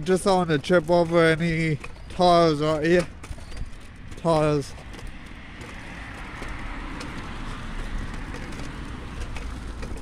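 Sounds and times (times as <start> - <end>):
low traffic rumble: 0.0 - 10.0
vehicle passing on wet road: 5.1 - 10.0.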